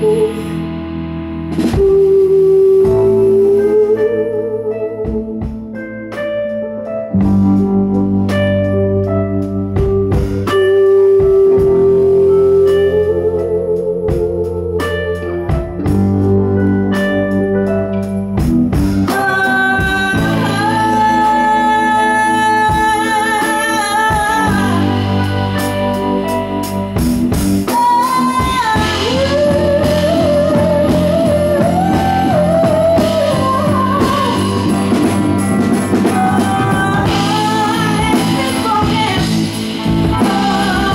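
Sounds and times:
electric guitar playing: 0:00.0 - 0:40.9
woman singing long notes: 0:01.7 - 0:05.4, 0:19.1 - 0:26.4, 0:27.7 - 0:40.9.

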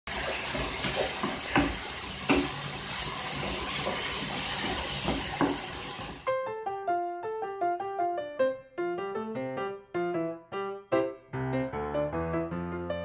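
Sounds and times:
food sizzling in a frying pan: 0:00.1 - 0:06.3
piano music: 0:03.5 - 0:13.0.

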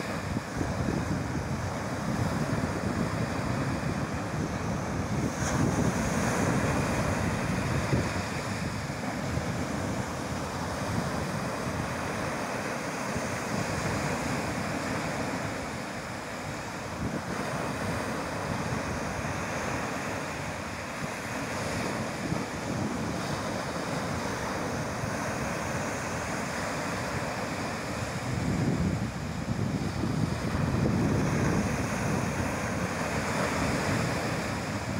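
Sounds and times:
waves washing up pebbly beach: 0:00.0 - 0:34.9
wind buffeting microphone: 0:00.0 - 0:34.9.

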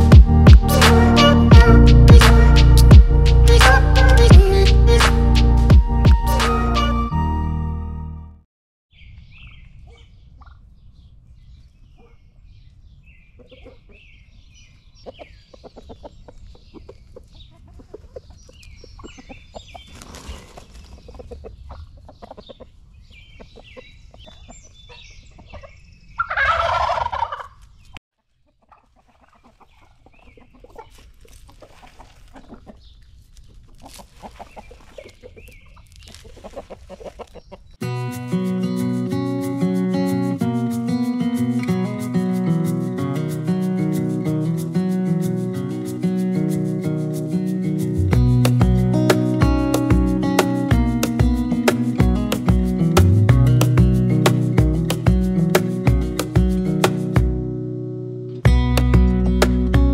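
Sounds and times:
poultry clucking and calling: 0:11.9 - 0:12.5, 0:13.2 - 0:37.8.

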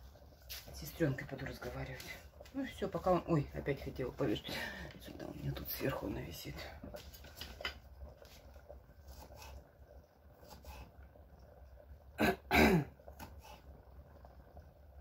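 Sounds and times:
woman clearing her throat: 0:12.2 - 0:13.0.

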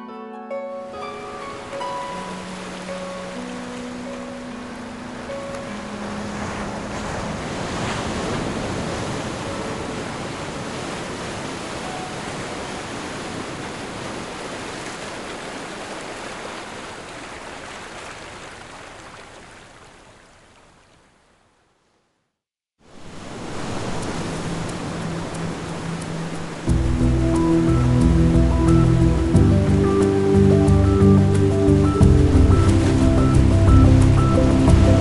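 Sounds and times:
surf-like rushing noise: 0:01.0 - 0:18.7, 0:22.8 - 0:35.0
low music notes: 0:24.7 - 0:35.0.

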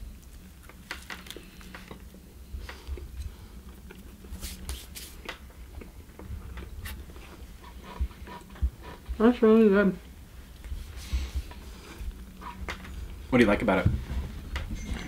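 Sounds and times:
person chewing food: 0:00.1 - 0:09.0.

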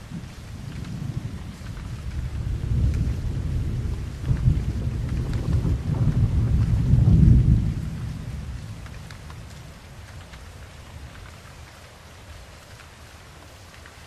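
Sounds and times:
low thunder rumble: 0:00.0 - 0:11.5
steady rain: 0:00.0 - 0:14.0.

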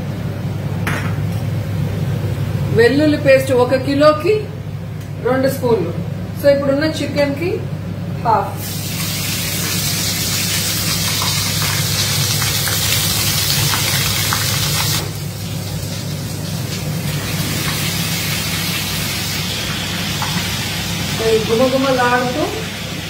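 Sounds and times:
steady low hum: 0:00.0 - 0:11.7
oil sizzling in a pan: 0:08.6 - 0:23.0.

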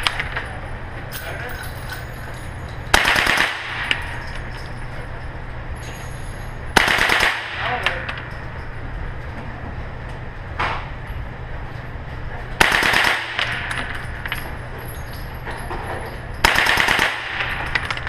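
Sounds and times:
automatic gunfire bursts: 0:02.9 - 0:03.8, 0:06.8 - 0:07.7, 0:12.6 - 0:13.6, 0:16.4 - 0:17.6.

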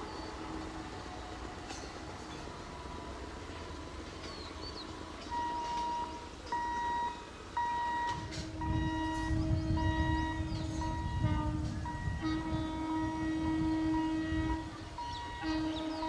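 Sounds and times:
electric train rumbling: 0:00.0 - 0:16.0.

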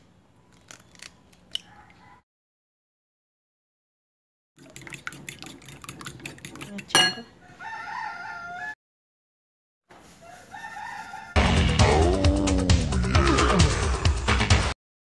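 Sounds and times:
fork beating eggs in a bowl: 0:04.6 - 0:07.2
rooster crowing: 0:07.4 - 0:08.8, 0:10.2 - 0:11.4.

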